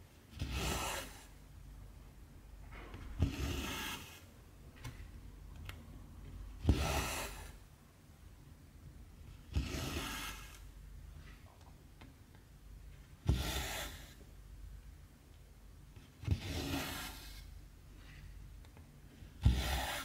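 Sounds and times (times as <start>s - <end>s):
thread rasping through fabric: 9.5s - 10.7s, 19.4s - 20.0s.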